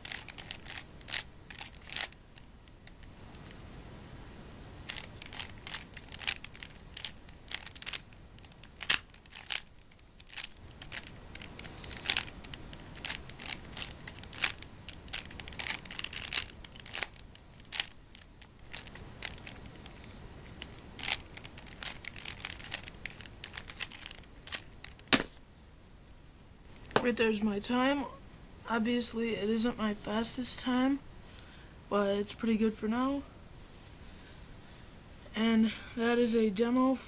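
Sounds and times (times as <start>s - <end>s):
puzzle cube plastic clicks: 0.0s - 3.4s, 4.8s - 25.3s.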